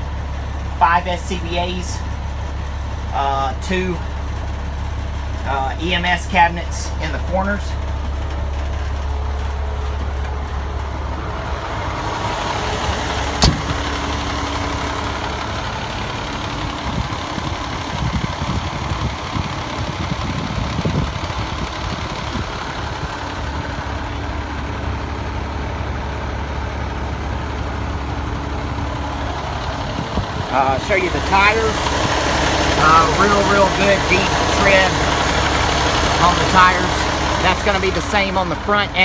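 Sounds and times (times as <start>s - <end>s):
diesel engine idling: 0.0s - 39.0s
low thumps: 7.8s - 19.2s.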